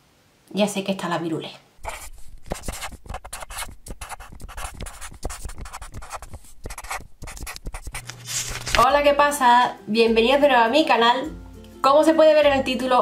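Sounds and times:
pencil scratching on paper: 1.8 - 8.8.

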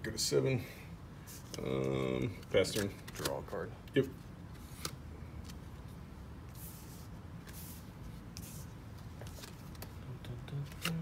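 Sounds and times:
cards sliding on table: 6.5 - 9.9.

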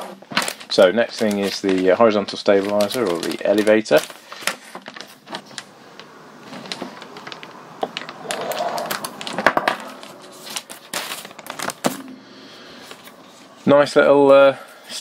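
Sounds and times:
plastic bag crinkling: 0.0 - 13.8.

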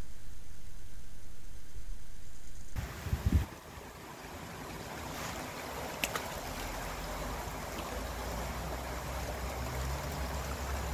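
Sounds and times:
stream running over stones: 2.3 - 10.9.

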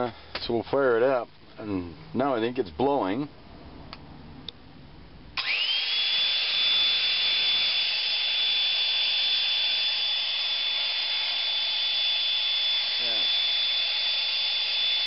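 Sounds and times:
air pump motor whining: 5.4 - 15.0.

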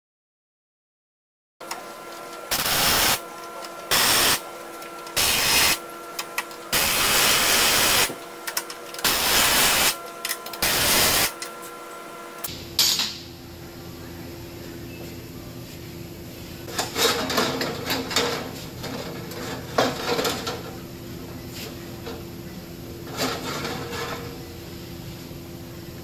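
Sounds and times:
steady machine hum: 1.6 - 26.0
pneumatic impact wrench rattling: 2.5 - 3.2, 3.9 - 4.4, 5.1 - 11.4.

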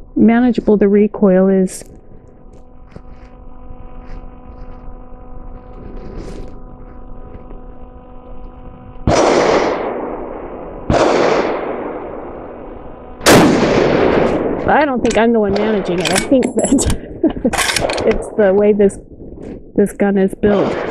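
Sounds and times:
faint steady hum: 0.0 - 20.9
rifle shots with echo: 9.1 - 12.6, 13.2 - 14.7, 20.5 - 20.9.

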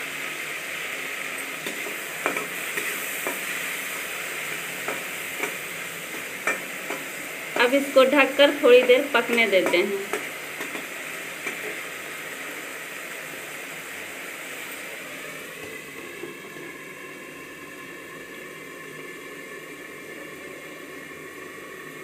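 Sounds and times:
sauce bubbling and sizzling: 0.0 - 22.0
faint steady tones: 3.2 - 10.3.

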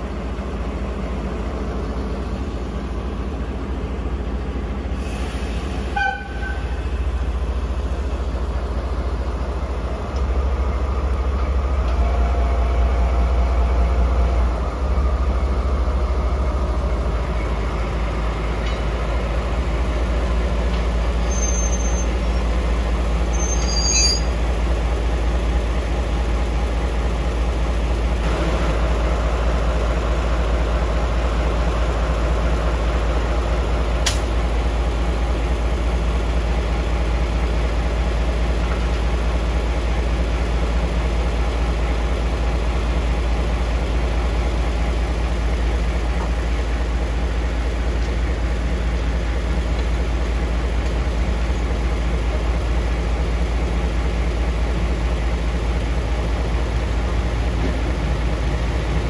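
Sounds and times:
locomotive engine idling: 0.0 - 59.0
sharp click: 34.0 - 34.3.

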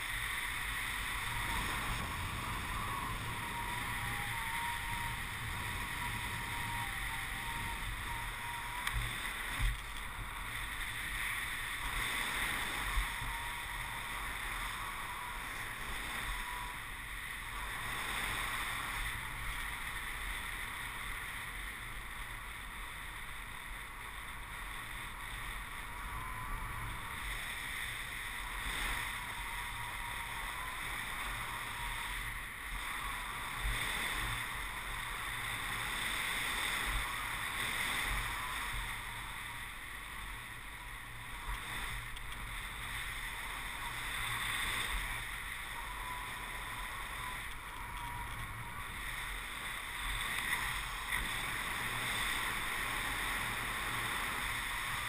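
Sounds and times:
wind rushing over microphone: 0.0 - 55.0
low buffeting bumps: 1.1 - 10.6.

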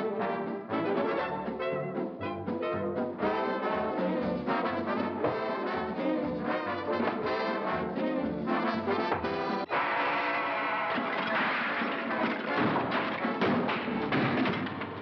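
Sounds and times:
orchestral cartoon music with brass: 0.0 - 11.5.

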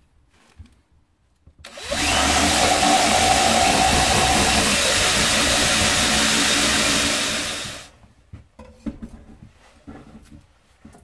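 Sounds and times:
drill spinning buffing wheel: 1.7 - 7.9.

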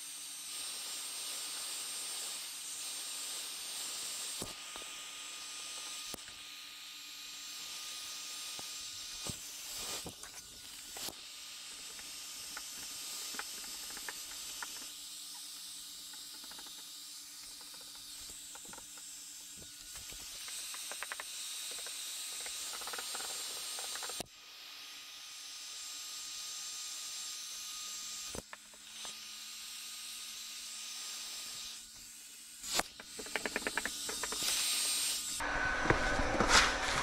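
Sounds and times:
heat gun hissing: 0.0 - 24.2, 31.2 - 37.0
small clicks and taps: 16.1 - 19.1, 20.4 - 24.2, 33.0 - 34.5.

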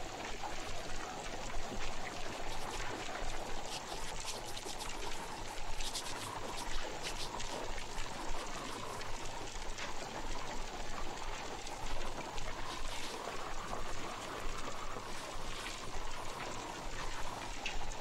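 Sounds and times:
water drips: 1.5 - 18.0
steady hiss: 2.0 - 9.5, 11.7 - 18.0
water splashing in a basin: 2.0 - 10.0.

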